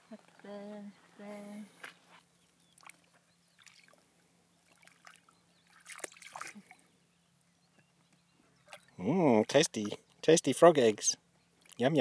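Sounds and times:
dog splashing and lapping water: 4.7s - 6.7s.

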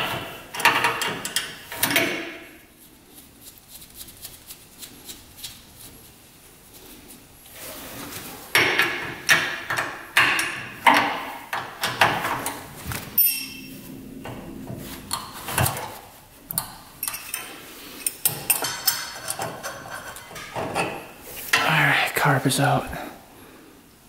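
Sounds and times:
metal clinks and knocks: 8.6s - 21.2s
ringing metallic ping: 13.2s - 16.0s.

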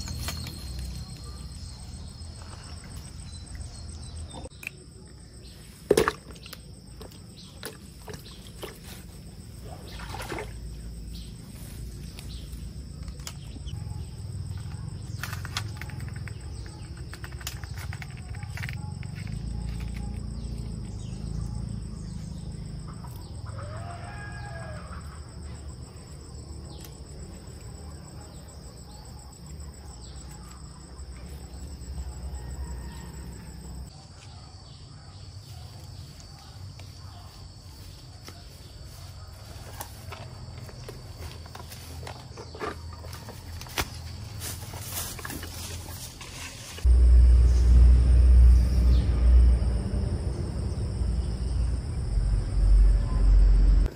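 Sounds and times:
insects droning: 0.0s - 53.9s
low rumble: 46.9s - 53.9s.

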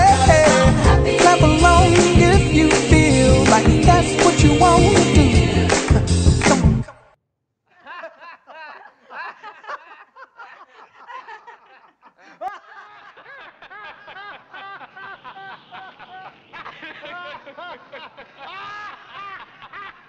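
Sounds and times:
song with singing: 0.0s - 6.9s
people laughing: 7.8s - 20.0s.

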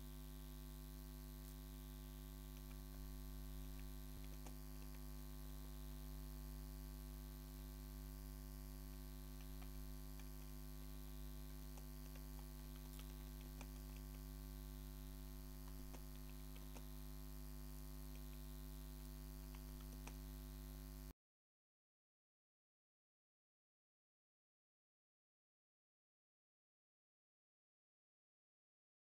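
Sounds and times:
electrical mains hum: 0.0s - 21.1s
faint keyboard typing clicks: 2.4s - 5.1s, 8.9s - 14.4s, 15.1s - 17.1s, 18.0s - 20.4s.

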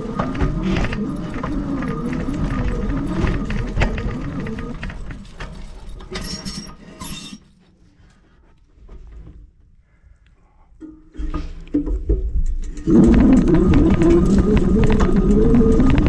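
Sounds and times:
bike frame rattling: 0.0s - 7.4s
brakes squealing: 0.0s - 7.4s
motor whine: 12.9s - 16.0s.

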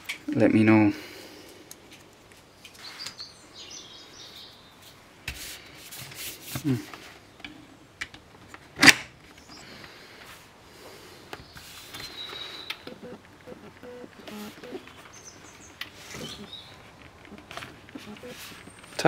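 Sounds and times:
sharp loud plastic click: 8.8s - 9.1s.

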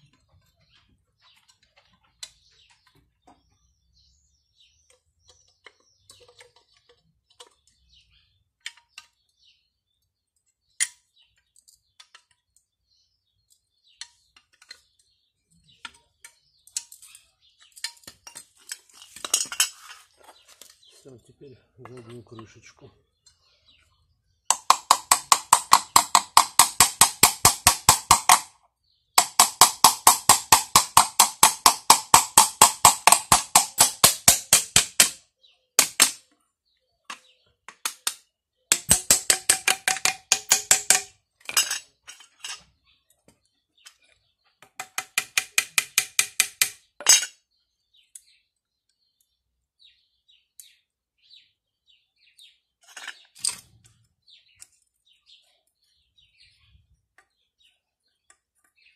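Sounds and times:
steel hammer tapping metal: 38.7s - 41.1s, 44.8s - 47.2s.

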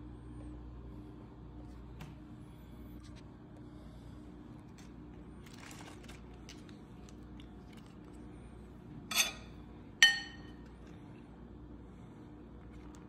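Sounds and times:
crisp crackle: 4.7s - 8.2s
lettuce leaves rustling: 5.4s - 8.0s
metal spoon clinking glass bowl: 9.1s - 10.6s.

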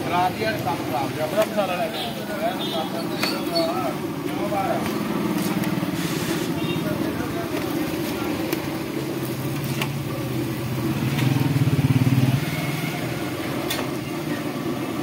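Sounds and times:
deep-frying in hot oil: 0.0s - 15.0s
vehicle engine running: 3.9s - 15.0s.

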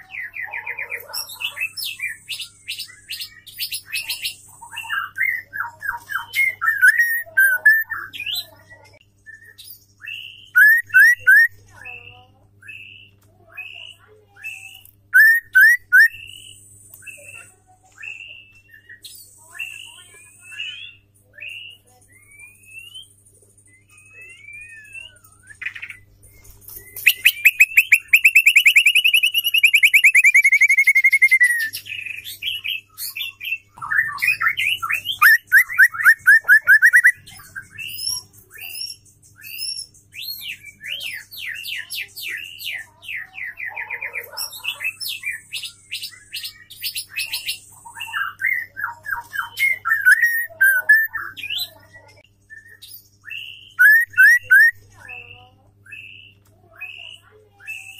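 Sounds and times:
bird singing trills and whistles: 0.0s - 57.9s
bird chips: 1.0s - 8.4s, 10.4s - 11.5s, 23.8s - 32.3s, 34.0s - 41.0s, 48.5s - 51.8s, 53.6s - 55.5s.

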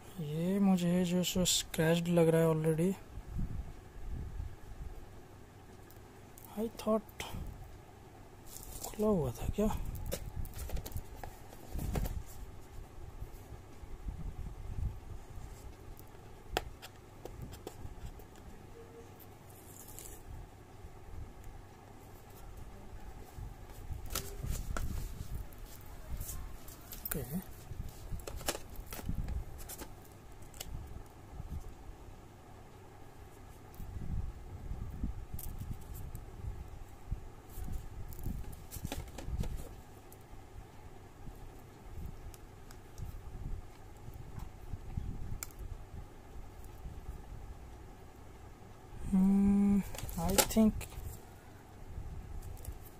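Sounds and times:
hands handling cardboard box: 8.5s - 9.1s, 10.0s - 12.5s, 38.4s - 39.8s, 49.8s - 51.1s.

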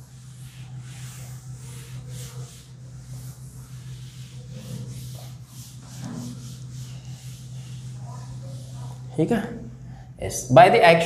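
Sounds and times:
duster wiping a chalkboard: 0.0s - 10.0s
steady low hum: 0.0s - 11.0s.

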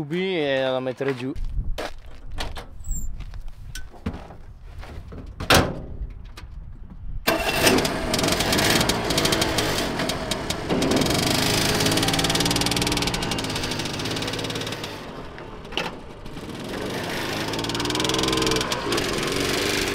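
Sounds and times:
small engine running: 7.3s - 19.9s.

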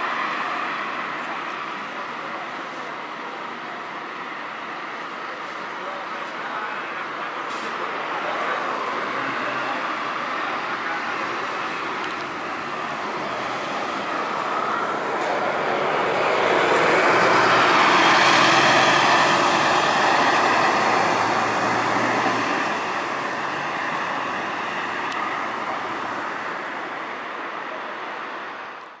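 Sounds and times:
coach diesel engine passing: 6.6s - 28.5s.

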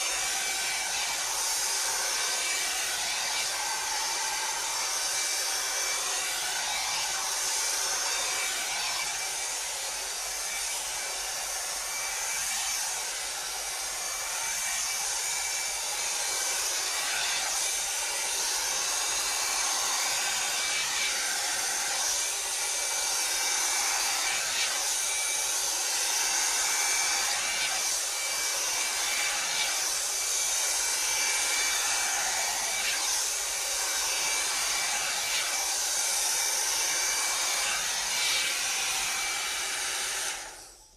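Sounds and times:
hot-air brush blowing: 0.0s - 40.9s.

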